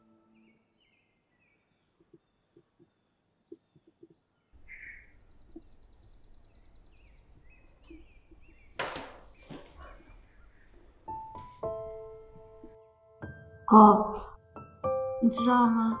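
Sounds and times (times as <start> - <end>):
soft piano music: 0.0 - 0.8, 10.8 - 16.0
faint bird chirping: 0.0 - 12.7.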